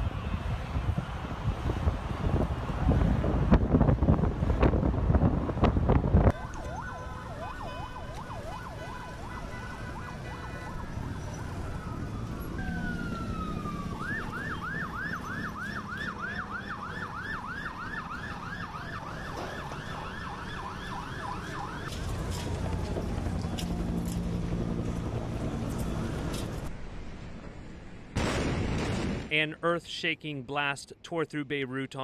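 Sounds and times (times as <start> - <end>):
wind buffeting microphone: 0.0 - 9.2
emergency vehicle sirens: 0.0 - 26.7.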